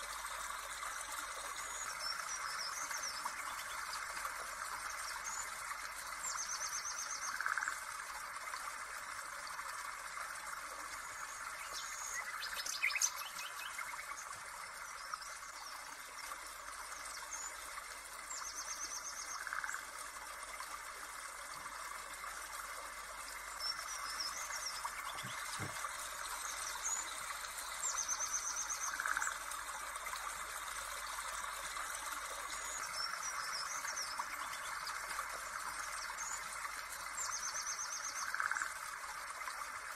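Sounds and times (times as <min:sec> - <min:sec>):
birds chirping and trilling: 0:23.6 - 0:29.3.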